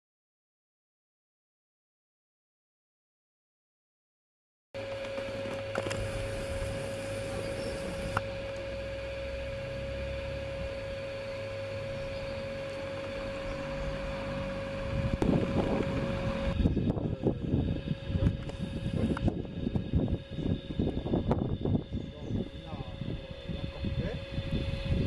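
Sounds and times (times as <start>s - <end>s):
constant whine: 4.8s - 25.0s
model train motor hum: 4.8s - 25.0s.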